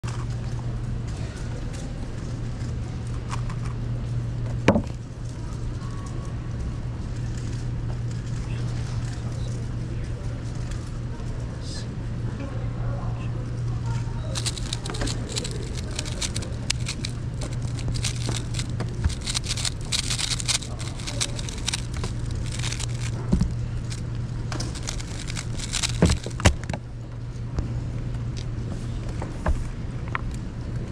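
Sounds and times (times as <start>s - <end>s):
plastic puzzle cube clicking: 14.4s - 23.3s, 24.6s - 26.6s.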